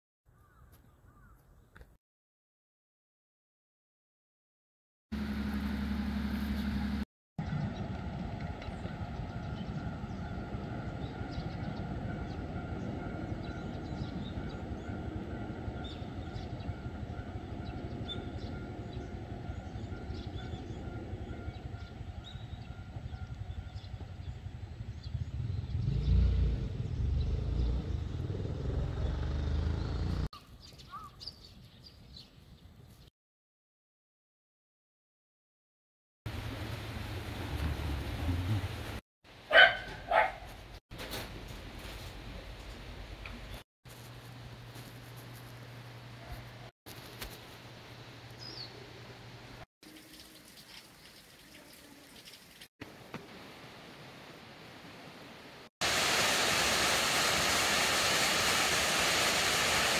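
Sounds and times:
road traffic hum: 5.2 - 15.2, 24.2 - 30.3, 36.3 - 40.6
vehicle passing with low rumble: 24.2 - 30.3, 36.3 - 39.0.

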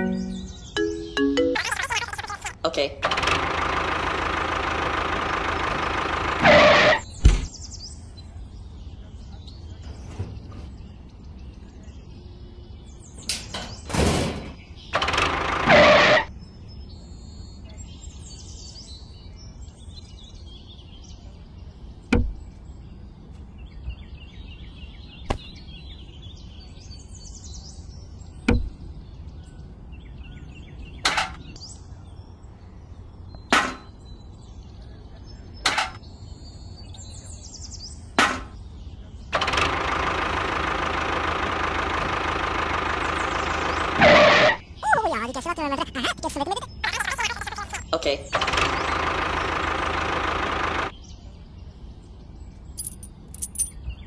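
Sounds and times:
faint bird chirps: 16.4 - 30.8.

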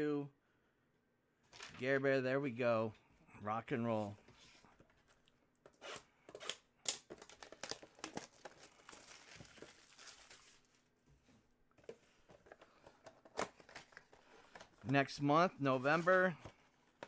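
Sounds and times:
plastic wrap crinkling and tearing: 7.1 - 10.9.

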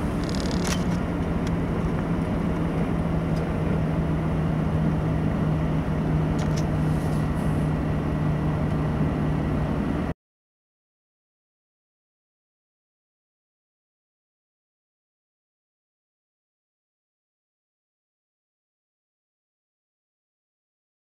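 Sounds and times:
truck diesel engine running: 0.0 - 10.1
light clicks and rattles: 0.2 - 1.6.

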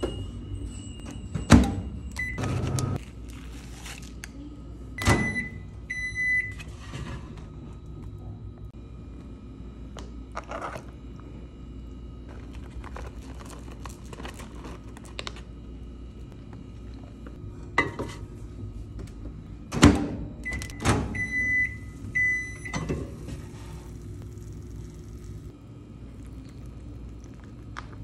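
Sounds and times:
microwave beeps: 0.0 - 3.0, 5.0 - 7.1, 20.4 - 24.0
steady low hum: 0.0 - 28.0.

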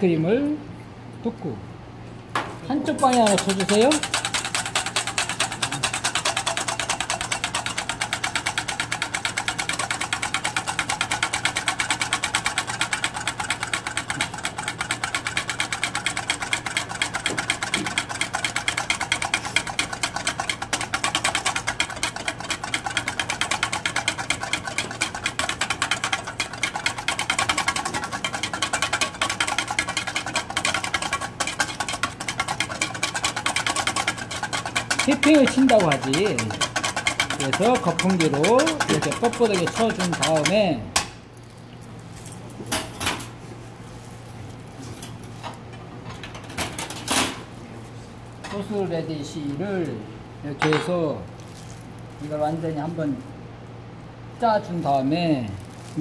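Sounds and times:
whisk tapping metal bowl: 2.4 - 41.1.

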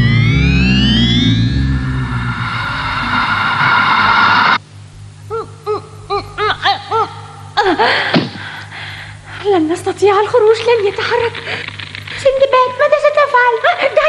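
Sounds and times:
shimmering sustained music: 0.0 - 4.6.

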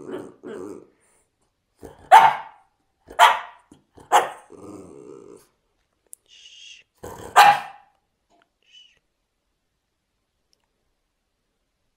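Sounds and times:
dog growling: 0.0 - 1.2, 1.8 - 2.2, 3.1 - 5.6, 7.0 - 7.4
dog barking: 1.8 - 4.5, 7.2 - 8.0.

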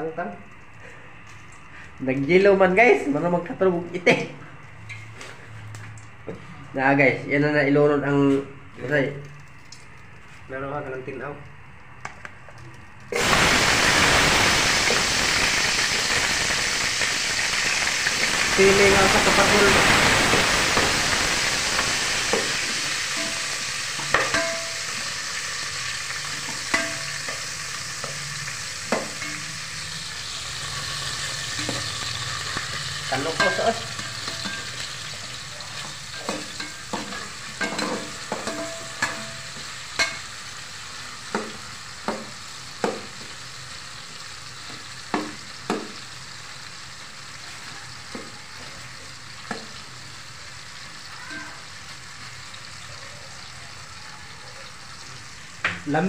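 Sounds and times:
vegetables sizzling in hot oil: 12.6 - 56.0
metal ladle clinking on pot: 24.1 - 24.8.

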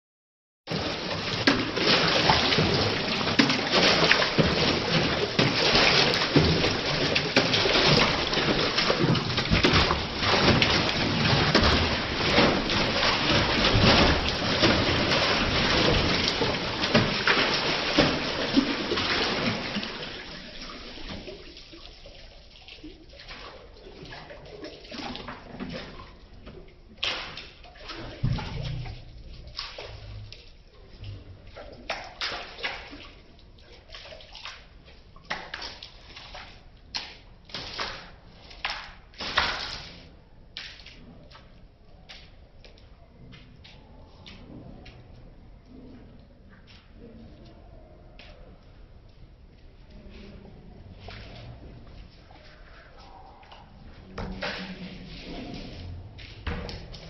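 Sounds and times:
dog splashing water: 0.7 - 57.0.

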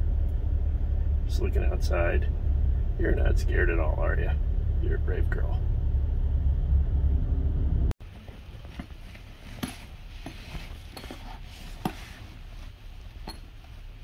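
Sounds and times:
low steady hum: 0.0 - 14.0
fabric pet carrier rustling: 8.1 - 12.9.

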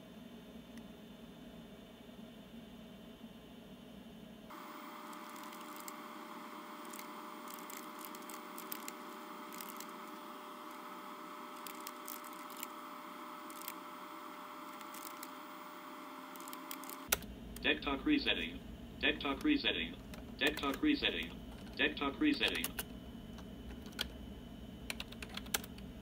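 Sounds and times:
computer hum: 0.0 - 26.0
faint whine: 0.0 - 26.0
computer keyboard typing: 5.0 - 15.4, 16.2 - 17.3, 19.1 - 24.1, 24.9 - 25.8.

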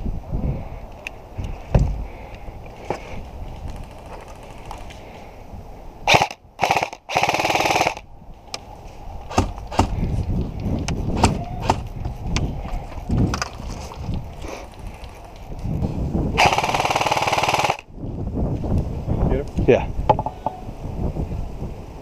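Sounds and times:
airsoft gun shots: 6.1 - 8.0, 9.3 - 10.0, 11.2 - 11.9.

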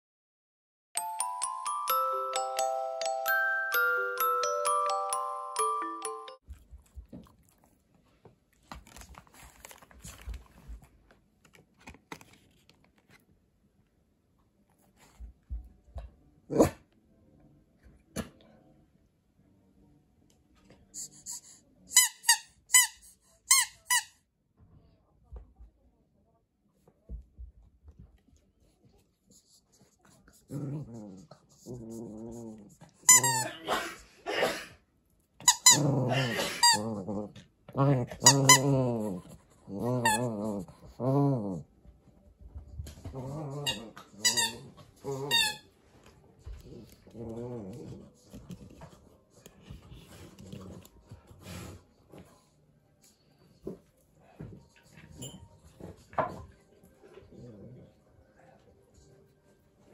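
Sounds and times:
squeaky toy squeaking: 21.2 - 24.2, 33.1 - 33.5
puppy growling: 30.3 - 33.7, 35.5 - 41.7, 42.9 - 45.6, 46.5 - 48.9, 49.9 - 51.8, 57.0 - 58.2.

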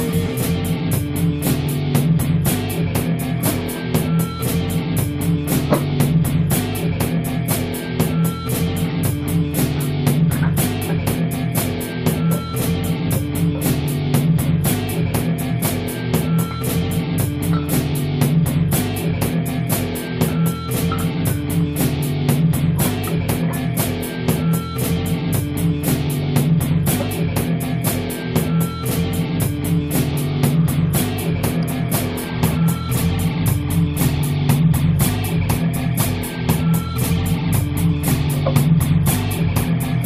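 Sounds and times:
rock music with guitar and drums: 0.0 - 40.0.

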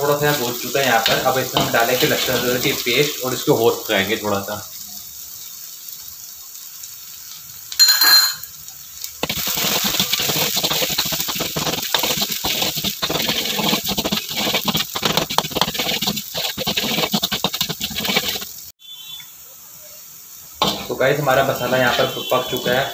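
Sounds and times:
metal ladle scraping a pan: 0.3 - 3.1, 9.2 - 18.5
spoon clinking against a pan: 7.8 - 8.5.

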